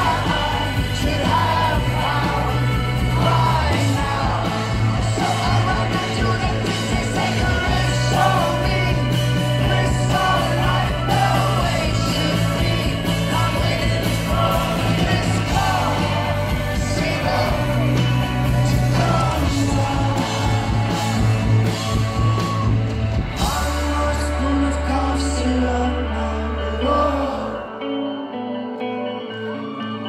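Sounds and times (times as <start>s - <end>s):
live rock band playing: 0.0s - 30.0s
person singing: 0.0s - 30.0s.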